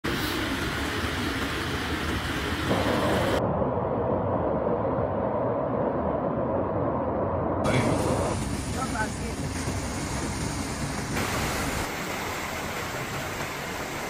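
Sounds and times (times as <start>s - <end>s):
floodwater rushing: 7.6s - 14.0s.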